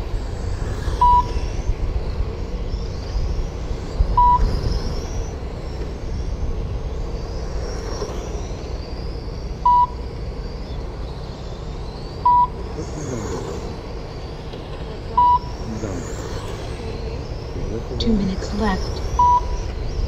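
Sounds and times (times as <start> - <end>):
electric motors whining: 0.0 - 20.0
short electronic beep: 1.0 - 1.3, 4.2 - 4.5, 9.6 - 10.0, 12.3 - 12.6, 15.2 - 15.5, 19.2 - 19.6.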